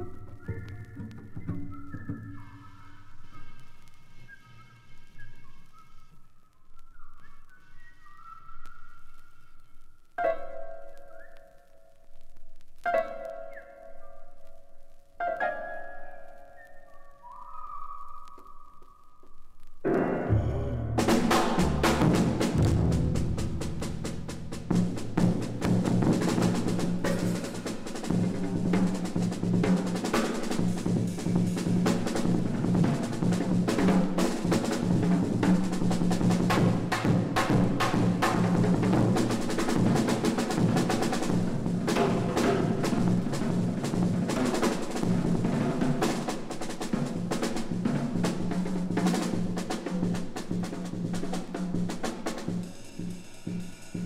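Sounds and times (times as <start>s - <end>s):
fast drum rolls: 19.9s - 54.0s.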